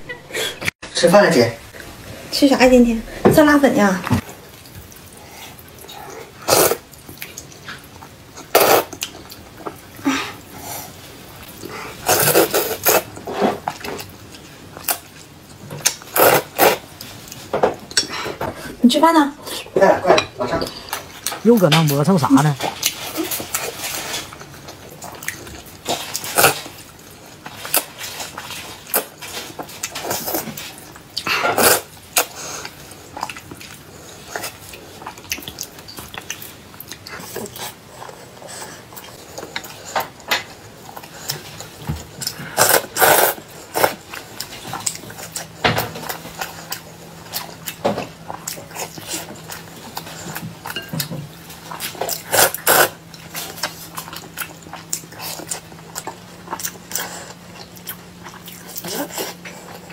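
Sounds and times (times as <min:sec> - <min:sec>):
chewing and biting: 0:22.7 - 0:59.9.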